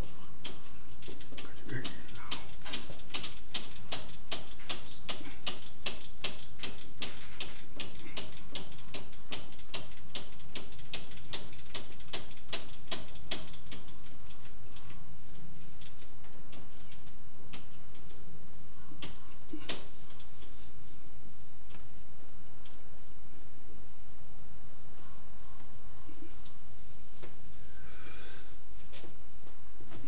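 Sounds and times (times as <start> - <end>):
rapid mechanical clicking: 0.0 - 15.0, 15.6 - 18.2.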